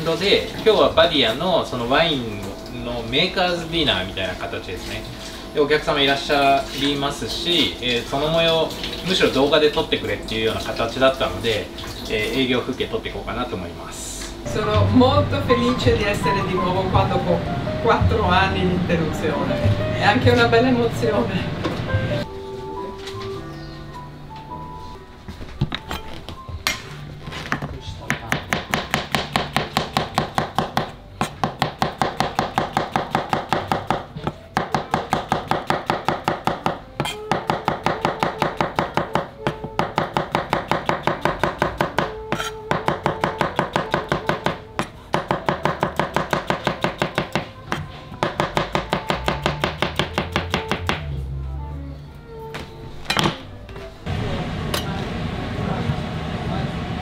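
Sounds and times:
knife chopping on cutting board: 28.0 - 51.0.

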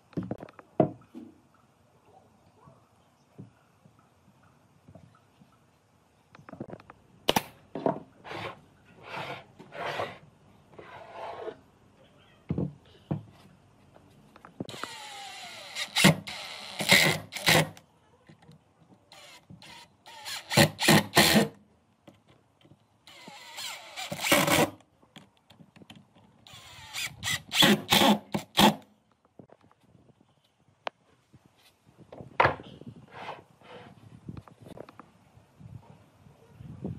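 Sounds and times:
wooden knocks and taps: 0.1 - 1.4
cordless drill driving screws: 14.7 - 17.8, 19.1 - 21.5, 23.1 - 24.8, 26.5 - 28.8.

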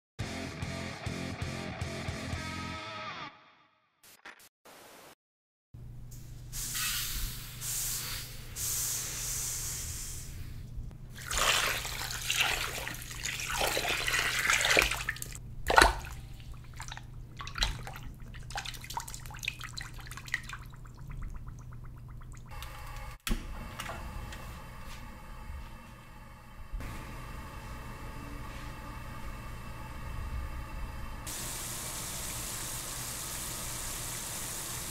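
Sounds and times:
water pouring and splashing: 11.1 - 22.6
water trickling and dripping: 11.2 - 22.6
steady low hum: 14.9 - 33.2.

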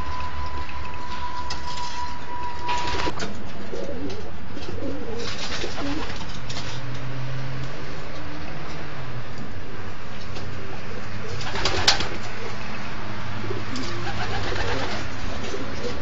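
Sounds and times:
steady high tone: 0.0 - 3.2
pigeons cooing: 3.7 - 6.2, 13.4 - 16.0.

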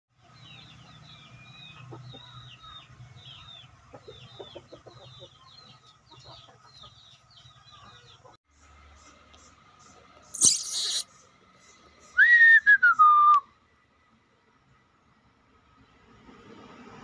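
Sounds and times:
chickens clucking softly: 3.7 - 8.4
faint high chirping: 9.2 - 13.3.

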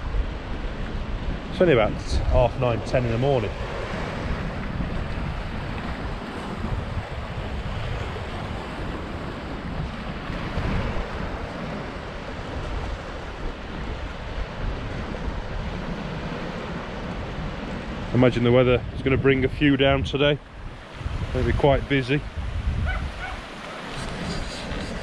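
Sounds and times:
wind buffeting microphone: 0.0 - 25.0
surf washing onto rocky shore: 0.1 - 18.5.

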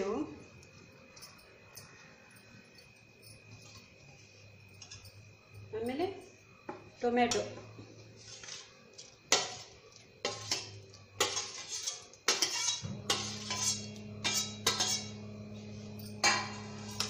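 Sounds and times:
steady low hum: 9.7 - 17.0.

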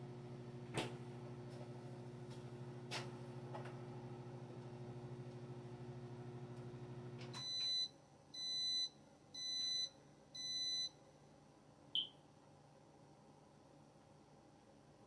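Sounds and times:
microwave running hum: 0.0 - 10.8
microwave beeps: 7.2 - 11.0, 12.0 - 12.2.

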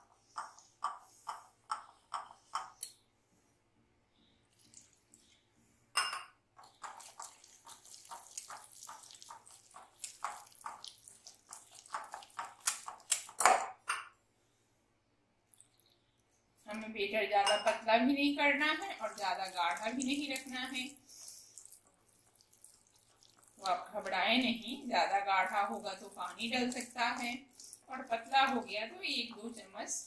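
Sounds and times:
whisk beating batter in glass bowl: 6.6 - 13.6, 18.4 - 29.7.

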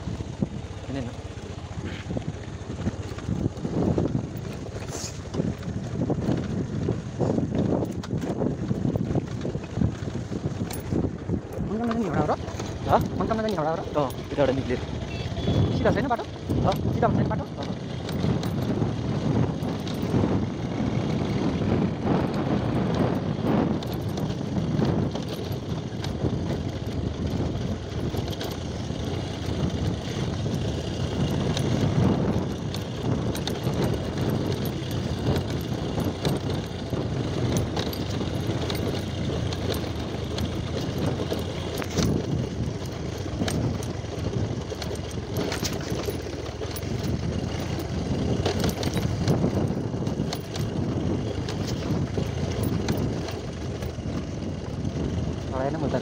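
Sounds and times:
motorcycle engine and road rumble: 0.0 - 56.0
knocks and rattles from bumps: 0.1 - 56.0.

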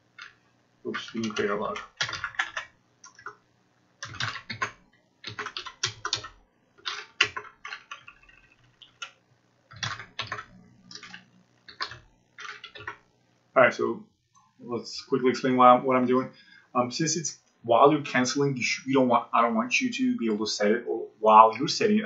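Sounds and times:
typing on computer keyboard: 0.1 - 3.4, 4.0 - 13.0.

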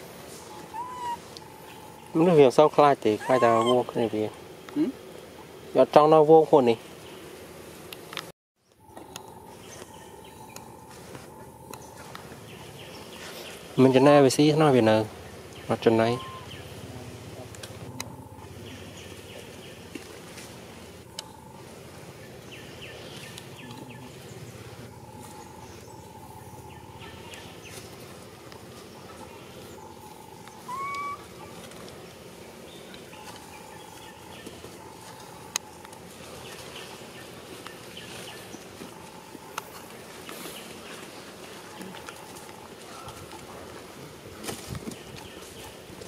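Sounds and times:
short rising animal squeak: 0.7 - 1.2, 3.2 - 3.8, 30.7 - 31.2.

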